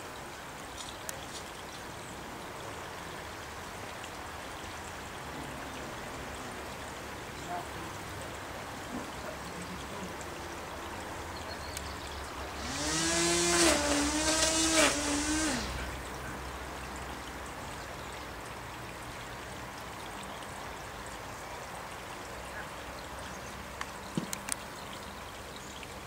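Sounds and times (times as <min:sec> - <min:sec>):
lawn trimmer motor whining: 0:12.5 - 0:16.0.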